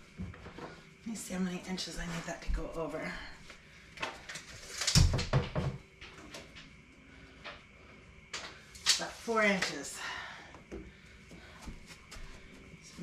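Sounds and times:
clicks and knocks at a cabinet: 5.0 - 5.8.

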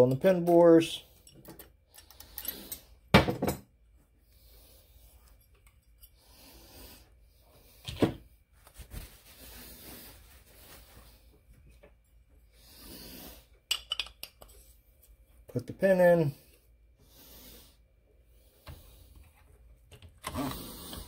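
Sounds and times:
metal parts clinking: 1.2 - 2.9.

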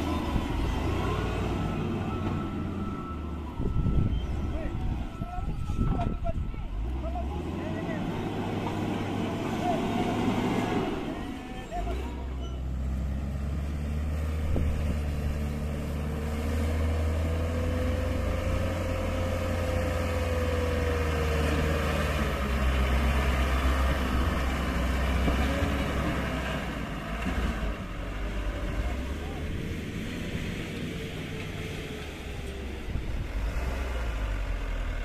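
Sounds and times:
diesel truck engine under load: 0.0 - 35.0.

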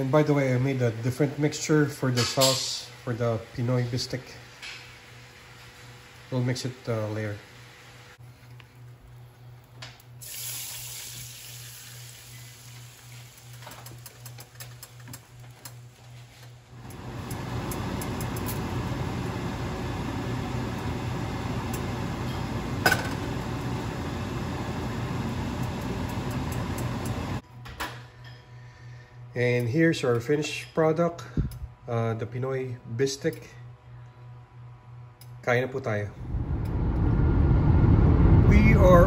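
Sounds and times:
short hiss: 10.2 - 12.3
sauce sizzling in frying pan: 10.2 - 13.6.

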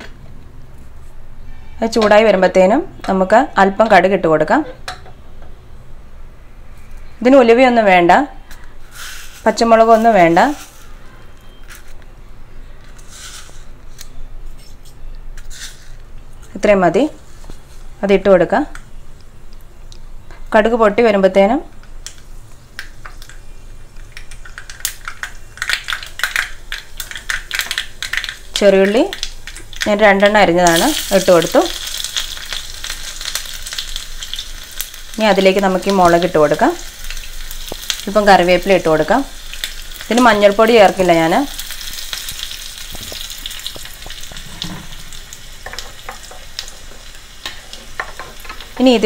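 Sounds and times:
mustard seeds popping in oil: 21.8 - 49.0.

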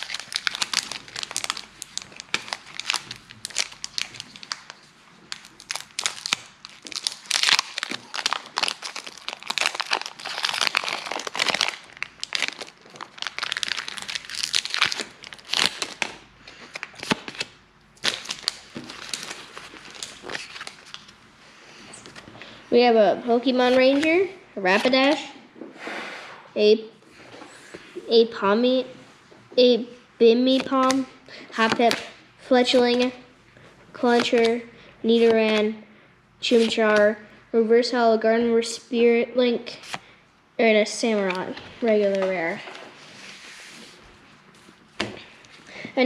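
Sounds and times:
foil wrapper crinkling and tearing: 0.0 - 21.1.

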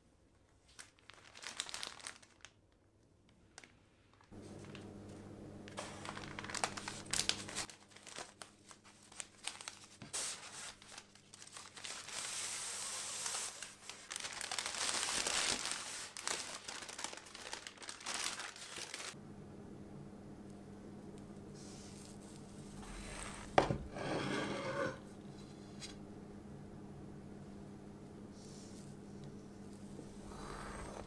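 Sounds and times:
baking paper crinkling: 0.5 - 19.2.

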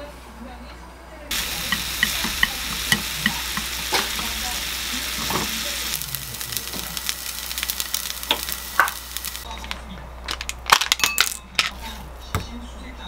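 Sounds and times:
chopsticks clicking on pan: 1.3 - 4.6
bacon sizzling in frying pan: 1.3 - 9.5
fat crackling and popping: 1.3 - 11.8.

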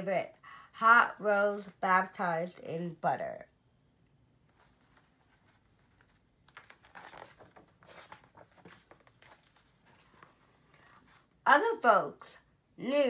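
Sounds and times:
book pages rustling: 4.4 - 11.4.

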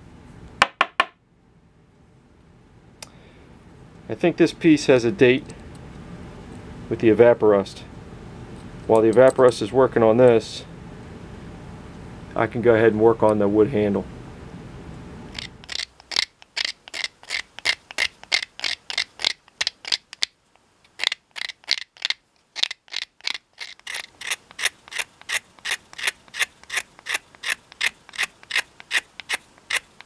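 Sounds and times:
knife blade scraping wood: 15.4 - 20.3, 20.9 - 30.0.

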